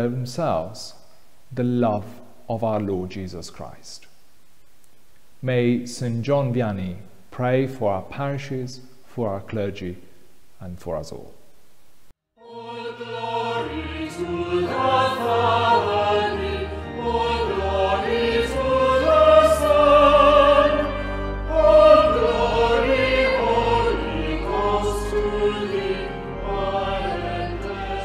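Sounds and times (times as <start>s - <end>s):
choir singing: 12.4s - 28.0s.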